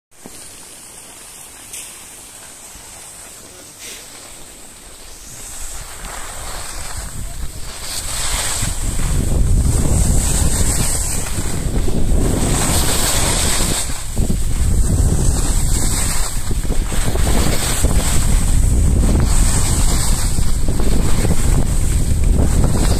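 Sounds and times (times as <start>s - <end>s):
skis scraping over snow: 0.2s - 22.9s
wind buffeting microphone: 5.1s - 22.9s.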